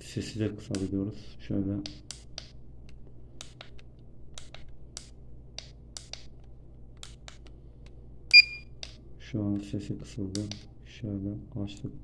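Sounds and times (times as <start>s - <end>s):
thermometer buttons clicking: 8.3s - 8.6s.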